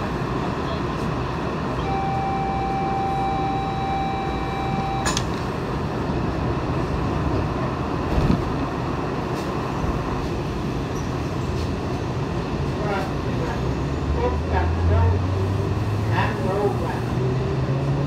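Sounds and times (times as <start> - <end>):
train hum: 0.0 - 18.0
high electronic warning tone: 1.8 - 5.2.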